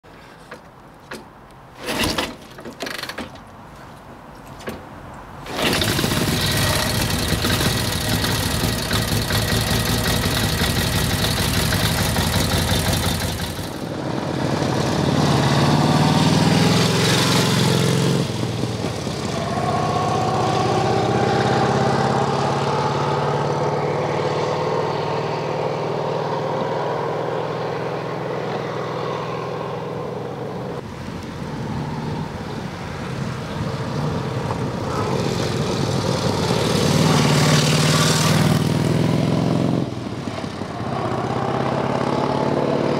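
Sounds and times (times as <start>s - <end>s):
motorcycle kick-start kicks: 0.4s - 3.5s, 4.4s - 13.8s
motorcycle engine running: 5.5s - 14.1s.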